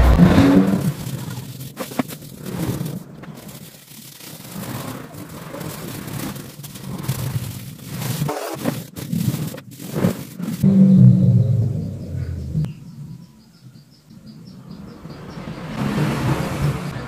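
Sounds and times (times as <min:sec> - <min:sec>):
brush scrubbing paint on canvas: 0:00.5 - 0:10.6.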